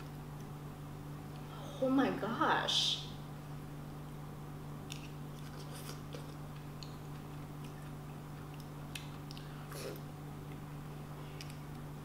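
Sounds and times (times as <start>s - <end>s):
steady low hum: 0.0s - 12.0s
chewing juicy fruit: 4.8s - 11.9s.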